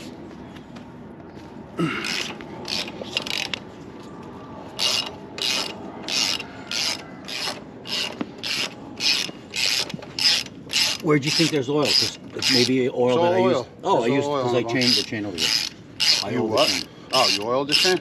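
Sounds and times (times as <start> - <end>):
ratchet wrench clicking: 2.0 - 3.6, 4.8 - 12.8, 14.8 - 18.0.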